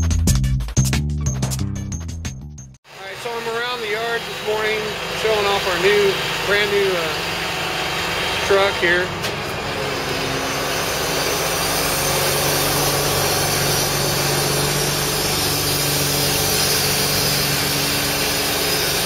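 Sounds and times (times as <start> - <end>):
diesel engine idling: 2.9 - 11.2.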